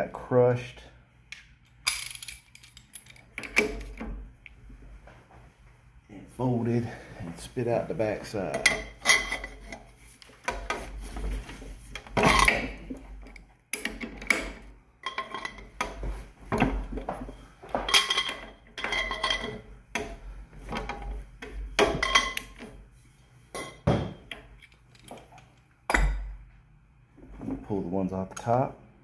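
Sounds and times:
metal parts clinking: 1.6 - 4.0, 8.6 - 9.8, 17.9 - 19.6.

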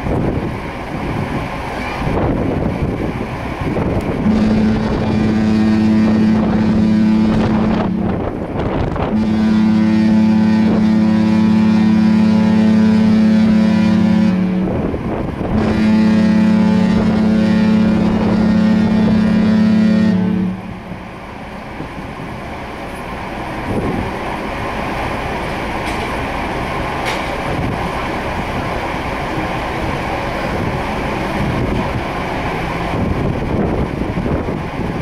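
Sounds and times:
deep ship horn blasts: 3.8 - 21.4.

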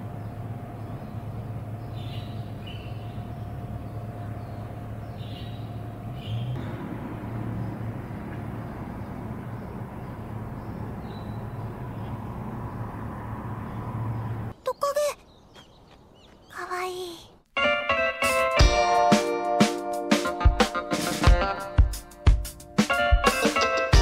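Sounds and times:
low background hum: 0.0 - 12.3.

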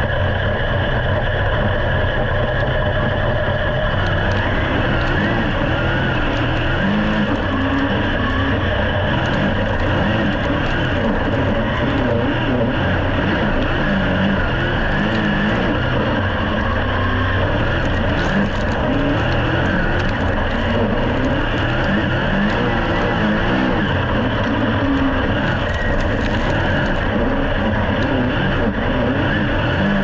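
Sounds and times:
racing car engine: 0.0 - 30.0.

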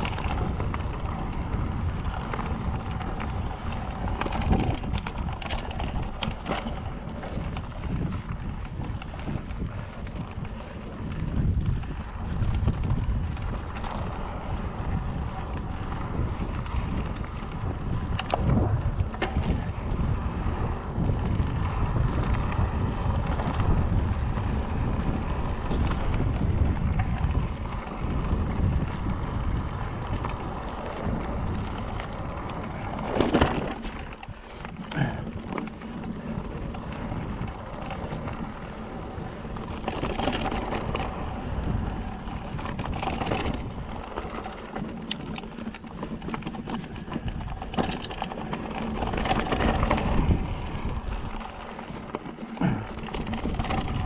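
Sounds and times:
bike knocks and rattles: 0.0 - 54.0
wind rumbling on microphone: 0.0 - 54.0
tyres crunching over gravel: 28.2 - 54.0.

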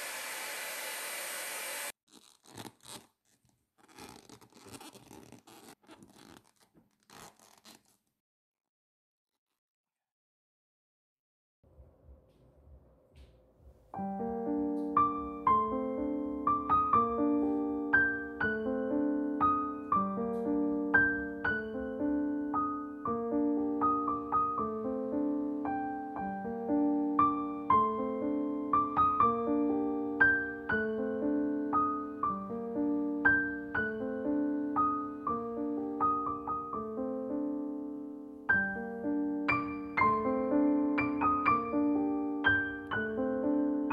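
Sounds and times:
gentle piano music: 13.2 - 43.9.

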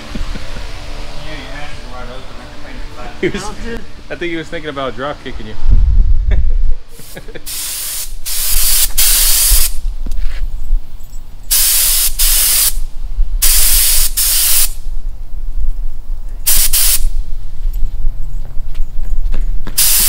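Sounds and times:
paint spray gun hissing: 6.9 - 9.8, 11.5 - 14.9, 16.4 - 17.3, 19.7 - 20.0.

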